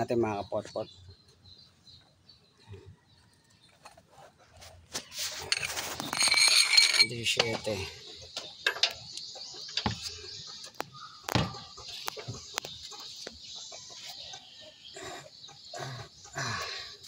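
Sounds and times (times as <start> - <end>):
hand tools clicking and knocking: 5.4 - 7.8, 8.4 - 10.2
chickens clucking: 7.5 - 16.8.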